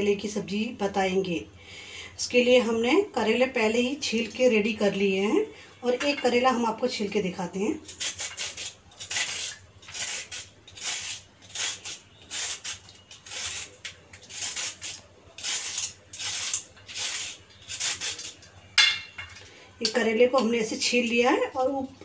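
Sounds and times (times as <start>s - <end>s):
knife scraping gourd skin: 7.8s - 18.6s.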